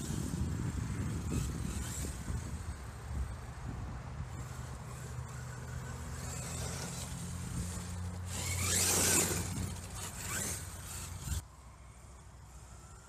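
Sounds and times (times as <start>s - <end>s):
rc truck motor whine: 0.0s - 13.0s
tyres scrabbling on dirt: 4.3s - 11.4s.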